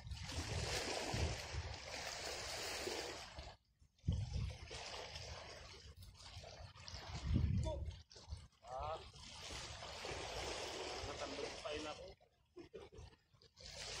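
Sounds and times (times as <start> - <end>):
wind buffeting microphone: 4.0 - 4.8, 7.0 - 8.0.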